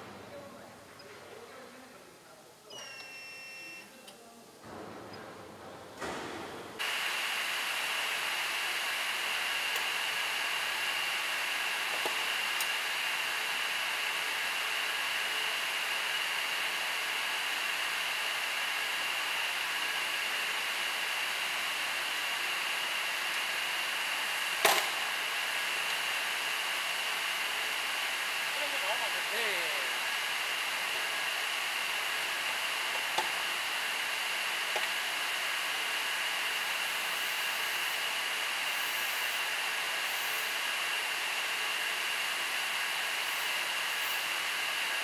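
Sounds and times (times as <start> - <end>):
welding machine whirring hiss: 6.0 - 45.0
high steady whine: 17.4 - 41.0.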